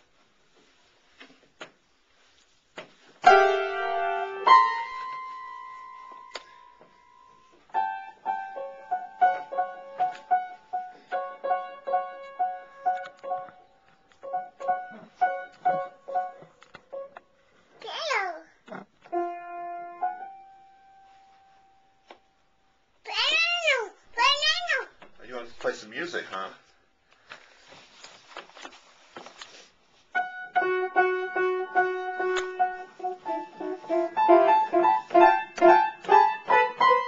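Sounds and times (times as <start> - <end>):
loud piano note clusters: 3.2 - 6.3.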